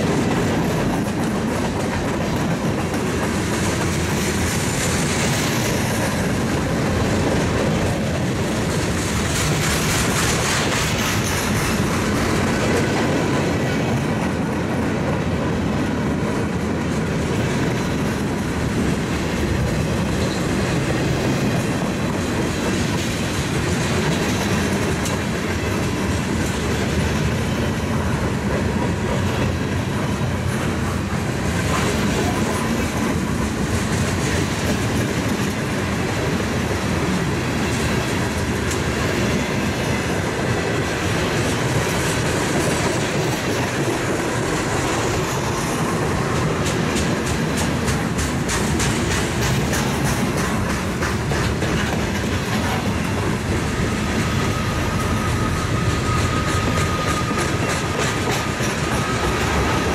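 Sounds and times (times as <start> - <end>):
sharp rail clicks: 0.0 - 14.5, 41.2 - 59.9
train wheels rumbling on rails: 0.0 - 59.9.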